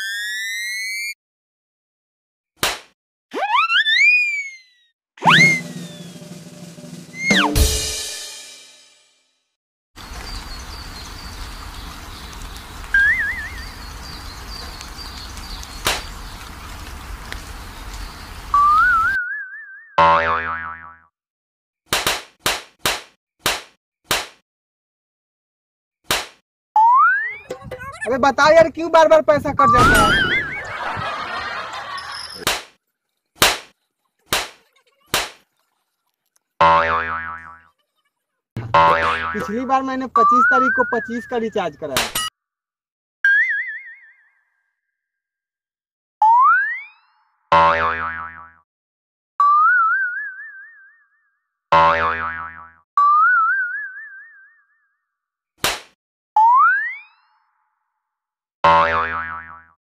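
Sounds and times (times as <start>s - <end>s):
sharp smacks: 2.6s - 3.0s, 15.6s - 16.2s, 21.9s - 24.4s, 26.1s - 26.4s, 32.4s - 32.8s, 33.4s - 35.4s, 42.0s - 42.2s, 55.6s - 56.0s
wobbling comic sound effect: 3.3s - 6.2s, 7.2s - 7.6s, 29.8s - 30.7s, 38.6s - 39.4s
faint birds chirping: 10.0s - 18.6s
wobbling boing tone: 38.6s - 39.4s, 51.8s - 54.3s.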